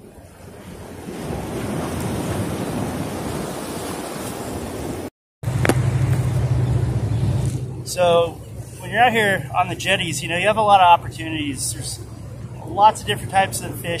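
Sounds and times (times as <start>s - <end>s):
waves washing against rocks: 0.0s - 5.1s
low steady hum: 5.5s - 14.0s.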